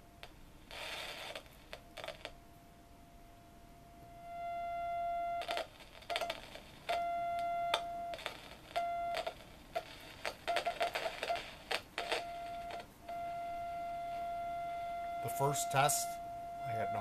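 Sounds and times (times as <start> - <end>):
steady oscillator beep: 12.2 - 17.0.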